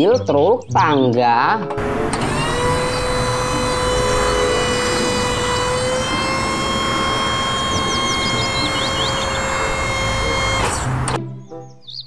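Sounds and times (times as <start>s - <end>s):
birds chirping: 1.8s - 11.1s
engine running: 1.8s - 11.2s
machine whine: 1.8s - 11.2s.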